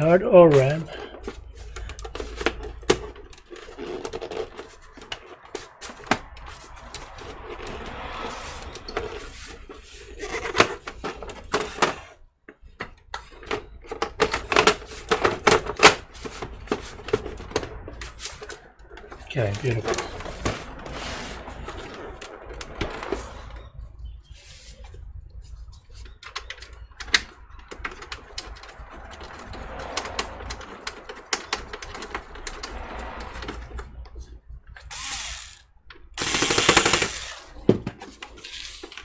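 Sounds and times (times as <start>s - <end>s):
rubbing sound: 3.6s - 11.3s, 19.4s - 23.6s, 24.2s - 26.1s.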